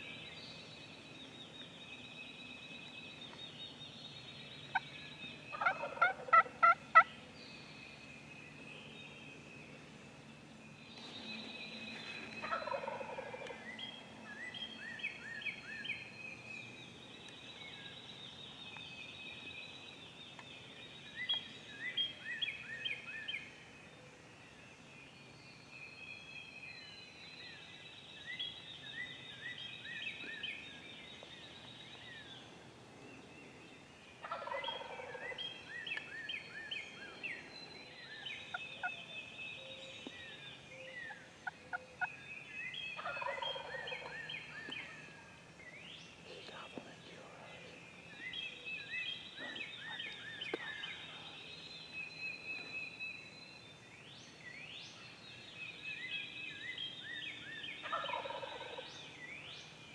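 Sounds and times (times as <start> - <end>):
songbirds singing and chirping: 0.0 - 59.9
turkey gobbling: 5.5 - 7.1, 12.4 - 13.4, 34.2 - 35.3, 43.0 - 44.1, 57.8 - 58.8.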